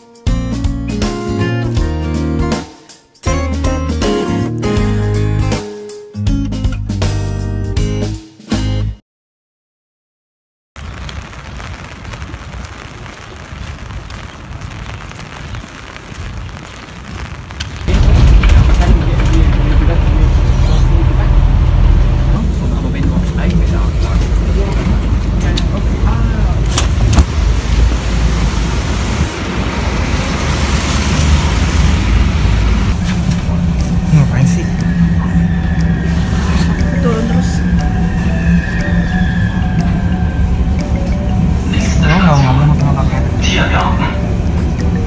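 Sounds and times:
rain on wet pavement: 10.8s - 38.1s
city street traffic: 17.8s - 45.0s.

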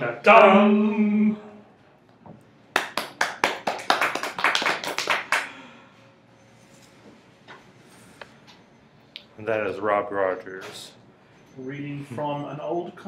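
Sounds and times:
group hand clapping: 2.7s - 5.7s.

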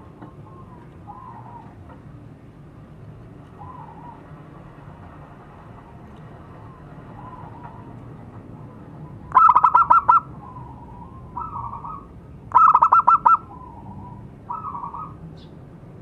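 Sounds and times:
dove cooing: 0.0s - 2.0s, 3.5s - 4.4s, 9.0s - 15.2s.

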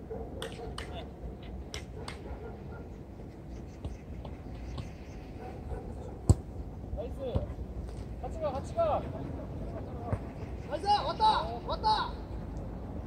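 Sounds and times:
ball being kicked: 6.2s - 6.5s.

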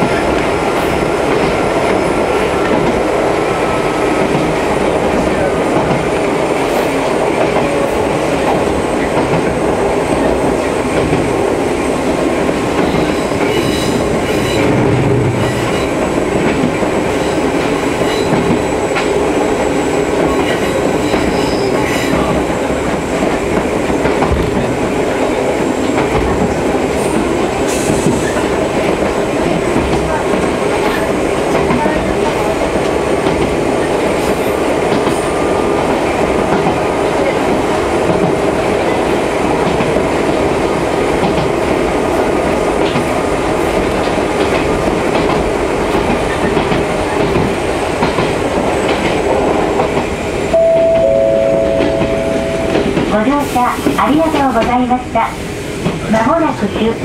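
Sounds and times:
train wheels rumbling on rails: 0.0s - 57.0s
faint high tones: 50.6s - 52.9s.

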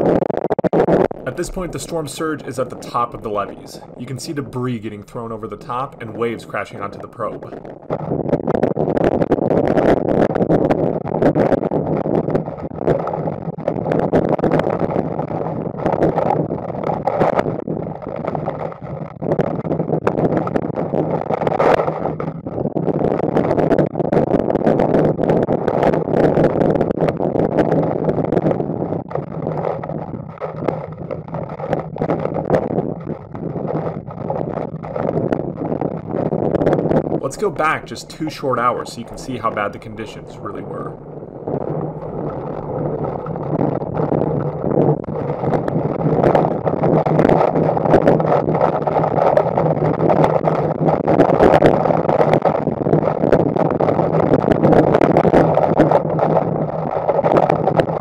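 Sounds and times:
loud wind noise: 0.0s - 58.0s.

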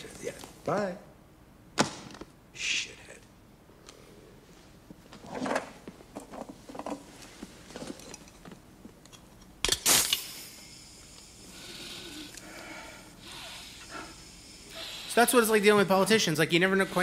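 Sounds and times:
canned air fumbling: 9.7s - 10.6s
can opening hiss: 9.7s - 12.7s.

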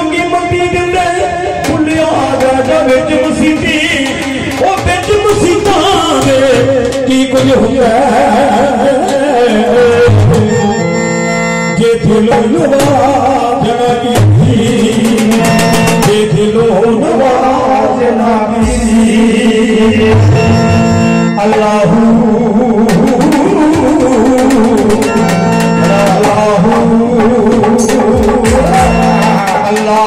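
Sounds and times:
steady drum beat: 0.7s - 10.7s, 11.8s - 17.1s, 18.6s - 21.7s, 22.7s - 30.0s
electronic keyboard melody: 8.5s - 17.4s, 18.6s - 30.0s.

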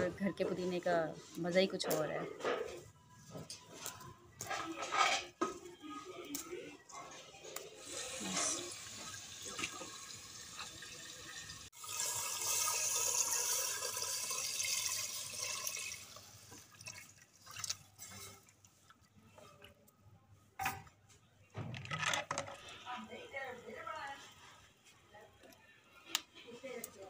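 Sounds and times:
liquid pouring into a pot: 7.8s - 19.0s
wooden spoon stirring a pot: 16.2s - 19.8s.

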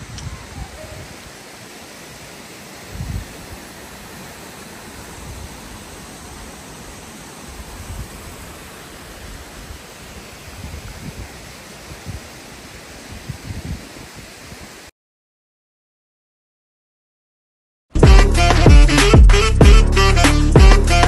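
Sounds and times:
waterfall rushing: 0.0s - 14.9s
wind gusts on microphone: 0.0s - 14.9s.

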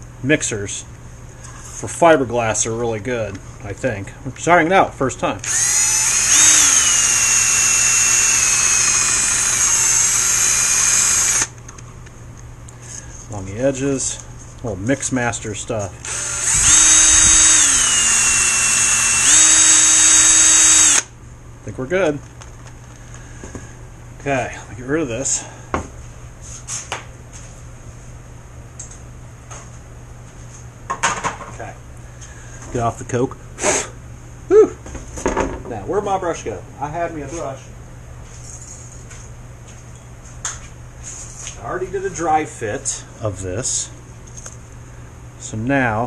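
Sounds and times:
steady low hum: 0.0s - 46.0s
cordless drill whining: 5.4s - 11.5s, 16.0s - 21.1s.

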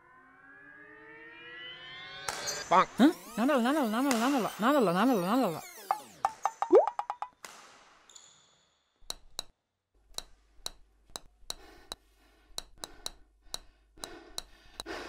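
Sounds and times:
ping-pong ball clicking: 6.2s - 7.4s, 9.0s - 12.0s, 12.6s - 15.0s.

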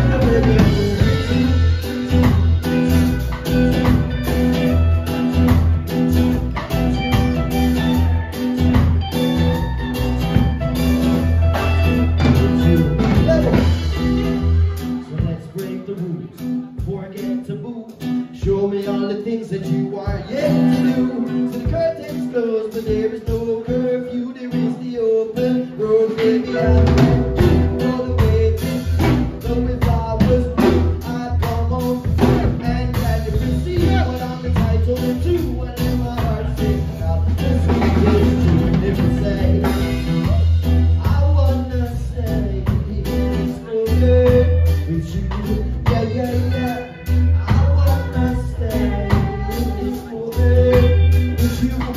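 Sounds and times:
people singing: 0.0s - 1.6s, 25.4s - 40.0s, 45.1s - 51.9s
live band playing: 0.0s - 51.9s.

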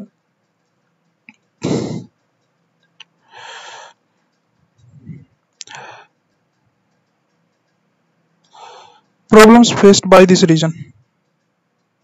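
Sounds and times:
faint clicks: 0.0s - 9.3s, 10.8s - 12.0s
man's throat noise: 1.6s - 2.2s.

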